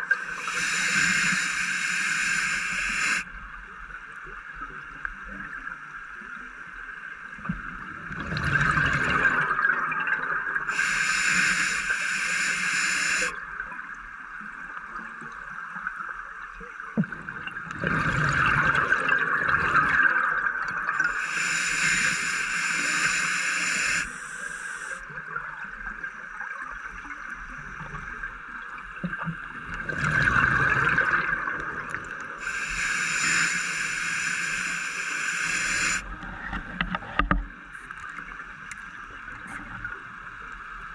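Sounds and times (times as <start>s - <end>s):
regulator inhale hiss: 0.0s - 3.3s, 10.6s - 13.4s, 21.0s - 25.1s, 32.2s - 36.2s
exhaled bubbles gurgling: 7.6s - 13.9s, 16.9s - 36.8s.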